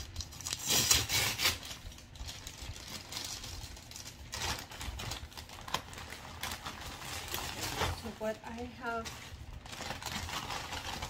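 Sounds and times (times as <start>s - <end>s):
packaging crinkle: 0.0s - 11.0s
packaging clicks taps and rustles: 1.8s - 11.0s.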